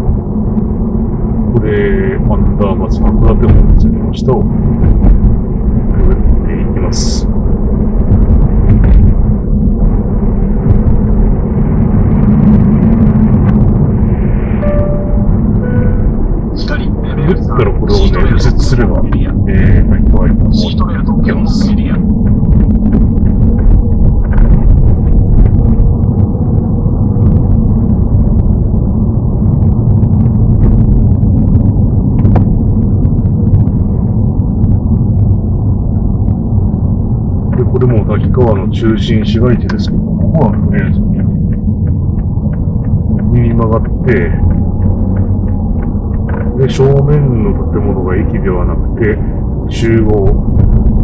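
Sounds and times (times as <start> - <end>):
car interior road rumble: 0.0 - 51.0.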